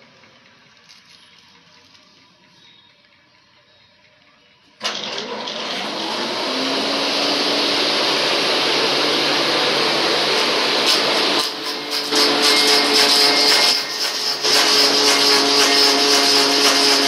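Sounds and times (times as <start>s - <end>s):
wood lathe whirring: 4.8s - 17.0s.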